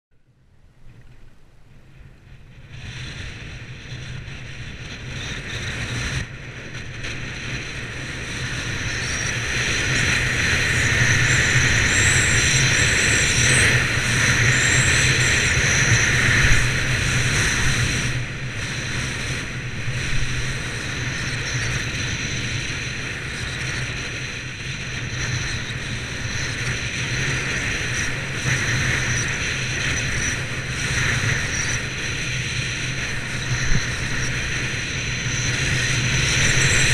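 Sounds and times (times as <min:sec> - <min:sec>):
wind over microphone: 0:00.2 - 0:36.9.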